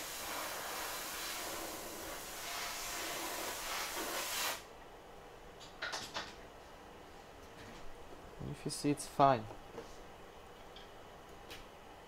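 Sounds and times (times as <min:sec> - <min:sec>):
rushing air hiss: 0:00.0 - 0:04.6.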